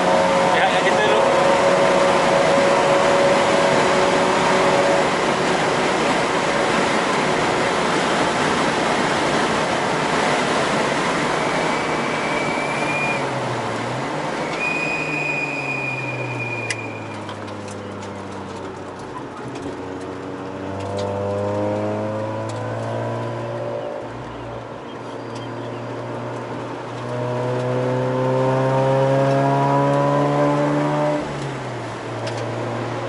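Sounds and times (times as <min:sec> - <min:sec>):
car engine running hard: 0:00.0 - 0:33.0
wind and road noise: 0:00.0 - 0:33.0
thin high squeal: 0:14.5 - 0:17.2.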